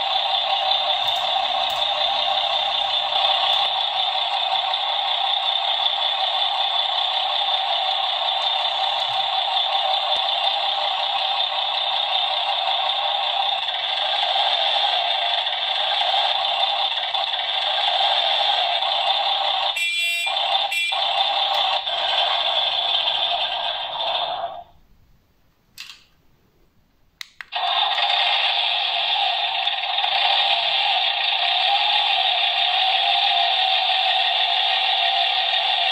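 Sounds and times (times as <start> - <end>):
electronic truck engine rumble: 0.0 - 24.9, 27.5 - 35.9
short horn-like tones: 19.8 - 21.0
clicks: 25.7 - 26.2, 27.2 - 28.0.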